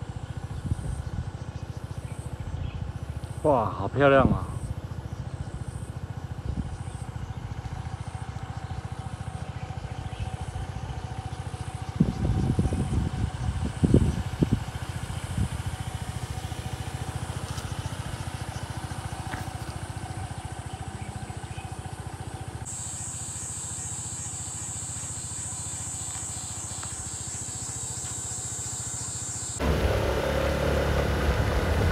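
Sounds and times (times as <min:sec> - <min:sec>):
scooter engine running: 0:00.0 - 0:31.9
steady high-pitched hiss: 0:22.6 - 0:31.8.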